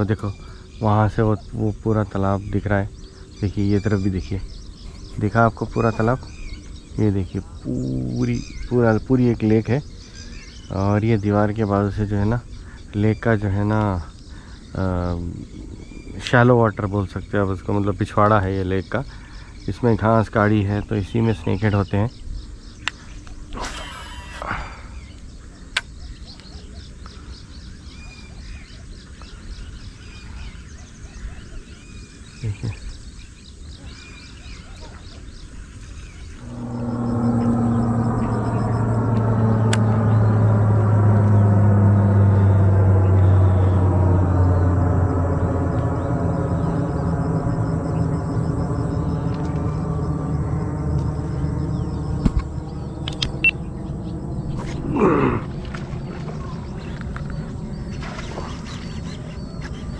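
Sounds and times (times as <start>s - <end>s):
motor droning: 0.0s - 17.8s, 36.0s - 59.9s
steady low rumble: 0.0s - 26.4s, 35.3s - 59.9s
birds chirping and calling: 0.0s - 42.2s, 43.0s - 59.9s.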